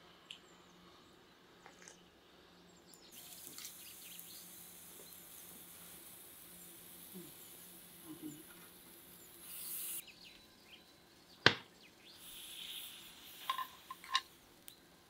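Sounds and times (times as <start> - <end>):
food sizzling on hot stove: 3.1 - 10.1, 11.9 - 15.0
faint bird chirps: 6.5 - 13.3.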